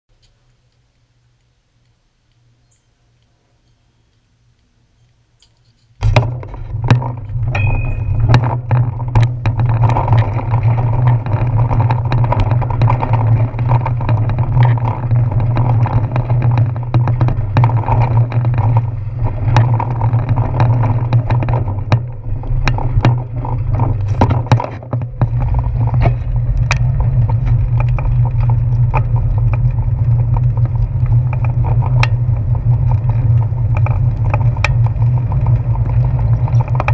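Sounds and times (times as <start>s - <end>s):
bicycle low rumble: 0.1s - 36.9s
bicycle knocks and rattles: 5.4s - 36.9s.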